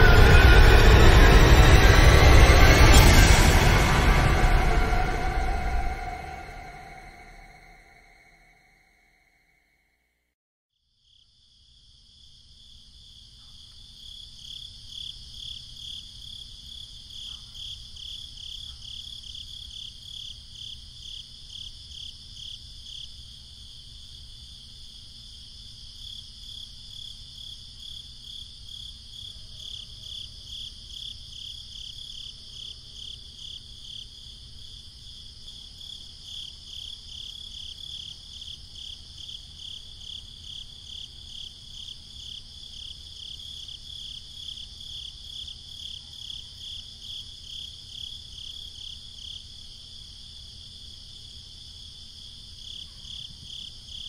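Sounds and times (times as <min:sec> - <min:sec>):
crickets chirping: 0:10.9 - 0:54.0.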